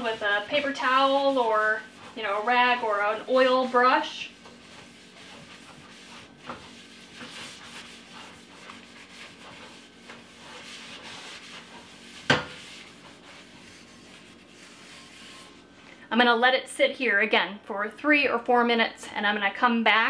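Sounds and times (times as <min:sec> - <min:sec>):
hand rubbing oil in pan: 0:00.0 - 0:15.8.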